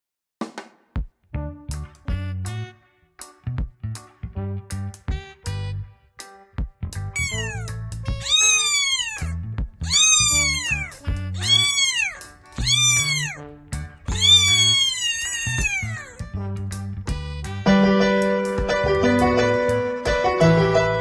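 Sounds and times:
background music: 1.2s - 21.0s
kitten meowing: 7.2s - 13.4s, 14.1s - 16.3s.

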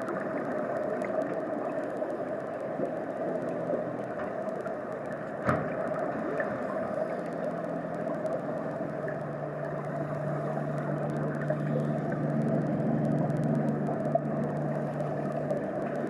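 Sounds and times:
low drone: 0.0s - 16.0s
muffled underwater noise: 0.0s - 16.0s
click: 0.2s - 16.0s.

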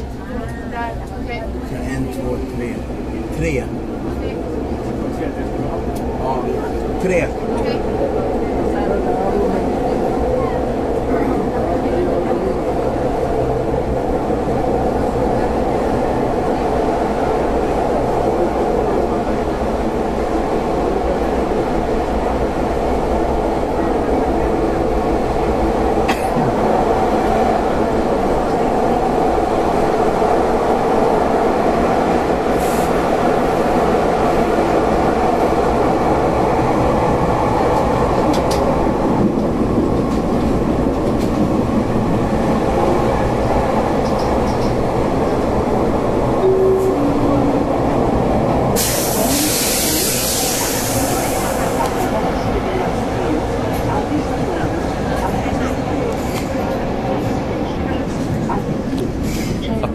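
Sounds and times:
train wheels and motors rumbling: 0.0s - 59.9s
loud hiss: 48.8s - 51.8s.

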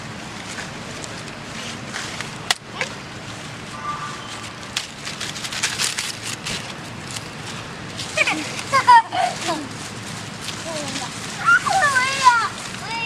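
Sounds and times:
dry leaves crackling and rustling: 0.1s - 13.0s
sharp crack: 1.9s - 3.0s.

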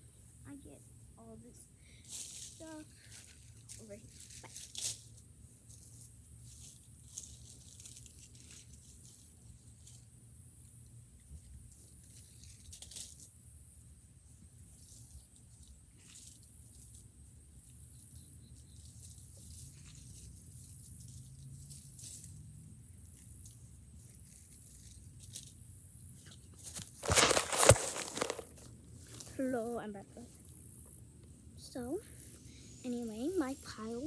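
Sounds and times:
phone handled in grass: 26.2s - 29.4s.

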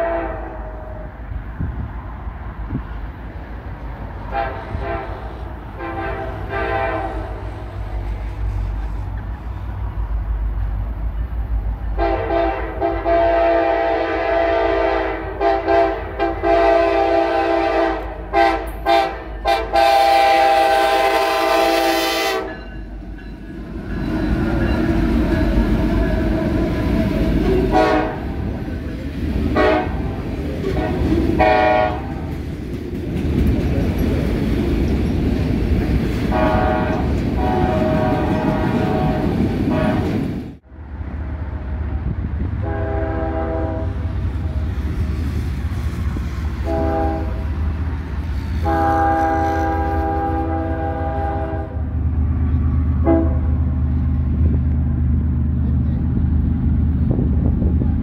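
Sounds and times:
locomotive air horn blasts: 0.0s - 1.2s, 4.3s - 7.9s, 11.9s - 22.8s, 25.0s - 28.6s, 29.4s - 32.2s, 36.2s - 40.3s, 42.6s - 44.2s, 46.3s - 47.7s, 48.5s - 51.9s, 53.0s - 53.6s
locomotives rumbling past: 0.0s - 58.0s.

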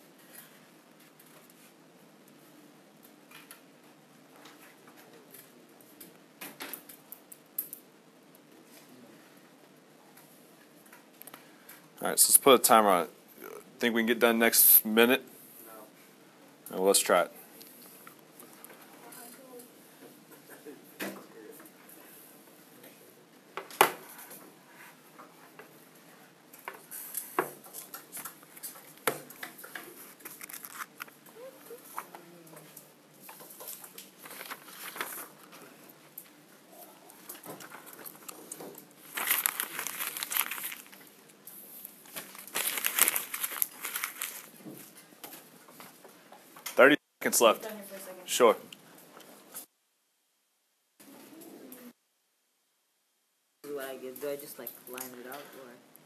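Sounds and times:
paper rustling and shuffling: 26.6s - 32.1s, 33.2s - 36.0s, 36.9s - 46.0s.

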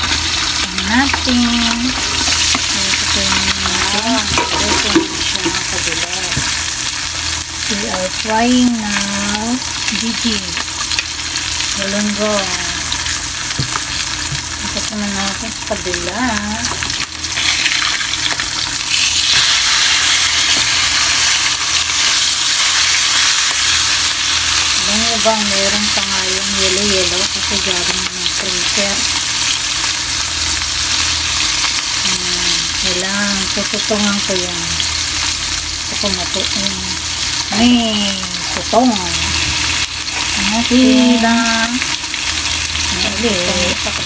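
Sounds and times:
fish sizzling in hot oil: 0.0s - 44.0s
utensils knocking against pan: 4.2s - 5.6s.

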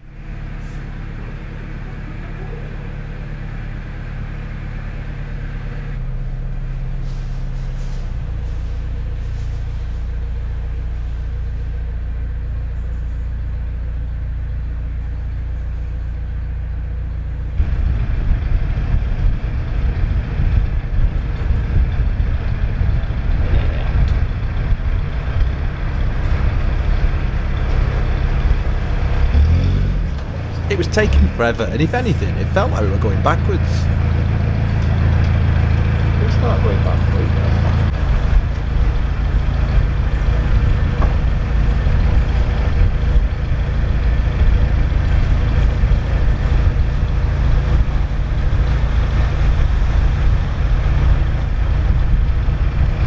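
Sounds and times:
boat engine running under load: 0.0s - 53.0s.

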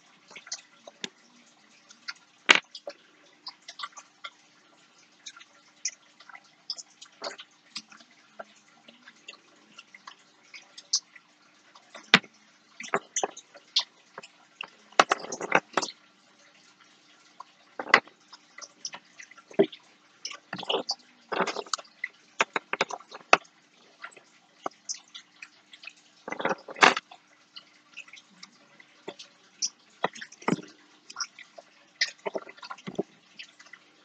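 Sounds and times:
small clicks and taps: 5.2s - 11.1s, 11.8s - 16.0s, 17.4s - 33.8s.

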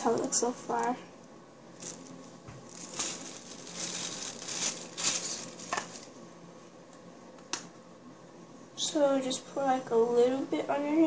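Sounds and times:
plastic bag crinkling: 1.7s - 6.2s.

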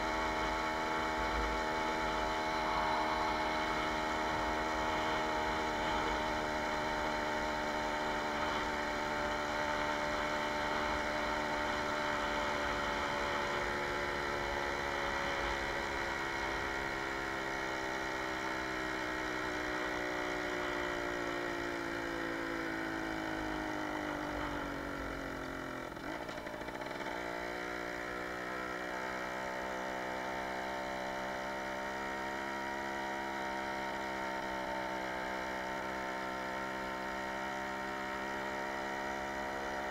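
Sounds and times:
two-stroke moped engine running: 0.0s - 39.9s.

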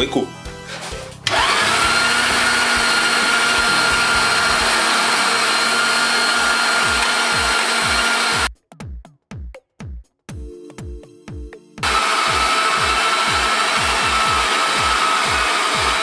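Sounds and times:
electric meat grinder running: 1.3s - 8.5s, 11.8s - 16.0s.

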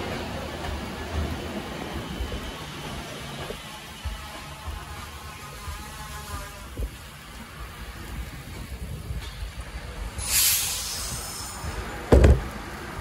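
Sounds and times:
electric trains rumbling: 0.0s - 13.0s
air hiss release: 10.1s - 12.3s
loud thump: 12.1s - 12.5s.

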